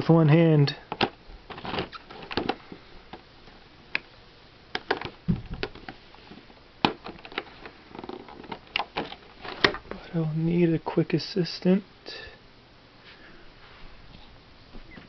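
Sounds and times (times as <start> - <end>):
dull thump: 5.2 - 5.7.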